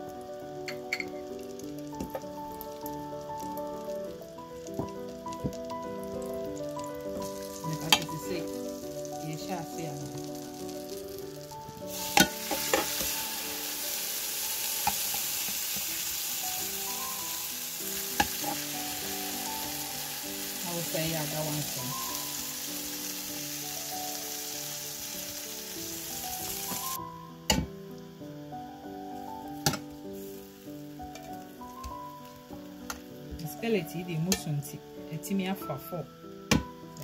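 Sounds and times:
butter sizzling in a skillet: 0.0 - 37.0.

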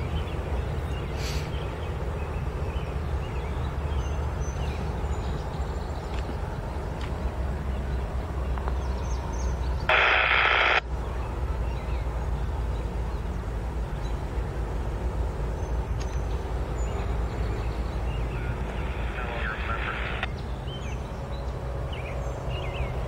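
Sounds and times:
diesel locomotive rumbling: 0.0 - 10.1, 10.7 - 23.0
loud noisy burst: 9.9 - 10.8.

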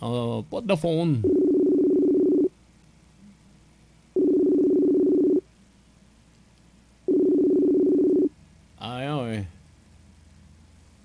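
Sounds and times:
phone ringback tone: 1.2 - 2.5, 4.2 - 5.4, 7.1 - 8.3.

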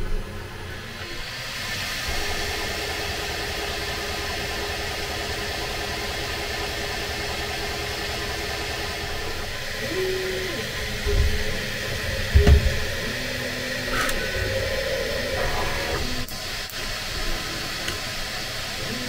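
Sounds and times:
fan whirring: 0.0 - 19.0
motor tones shifting pitch: 0.0 - 19.0.

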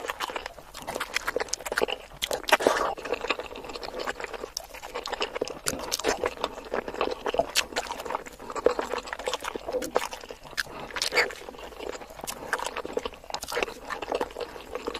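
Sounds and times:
wet chewing and mouth smacks: 0.0 - 14.9.

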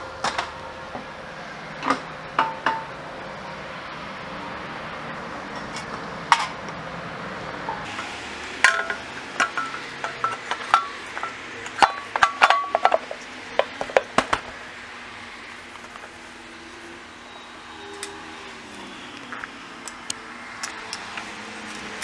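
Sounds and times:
metal parts and tools clinking: 8.6 - 14.0.

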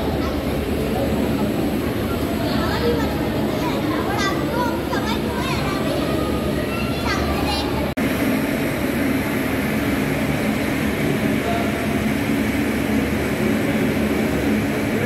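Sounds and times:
turboprop engines droning: 0.0 - 15.0.

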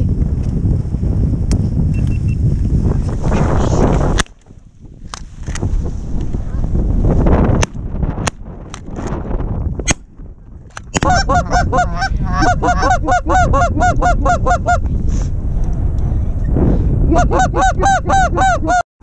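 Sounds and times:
goose honking: 11.0 - 14.8.

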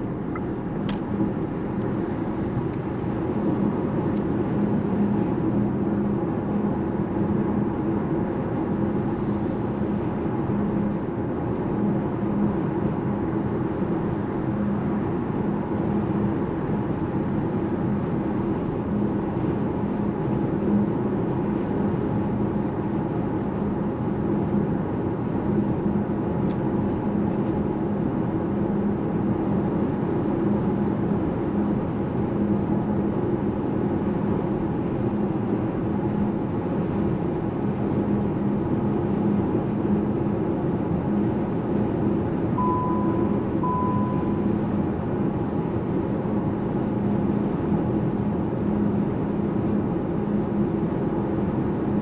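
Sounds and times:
short high beeps: 42.6 - 44.6.

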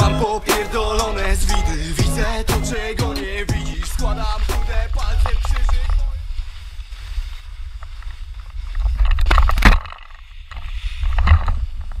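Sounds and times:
skis scraping on snow: 3.3 - 9.3, 10.1 - 12.0
wind rumble on microphone: 3.4 - 12.0.

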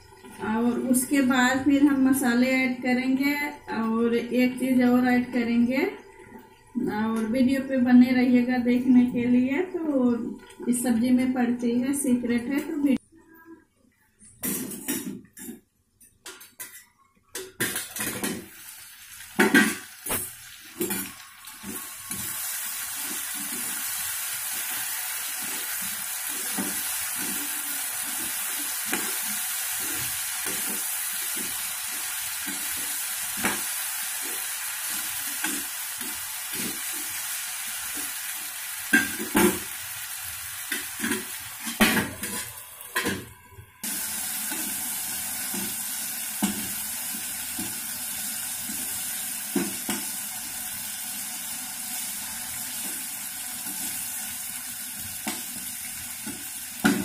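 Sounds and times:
vegetables sizzling in pan: 17.6 - 57.0.

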